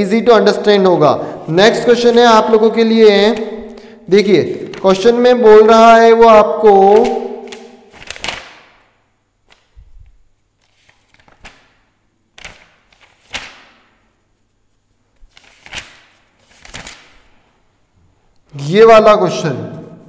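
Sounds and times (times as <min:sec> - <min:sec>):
book pages flicking: 0:06.9 - 0:14.1, 0:15.2 - 0:17.3.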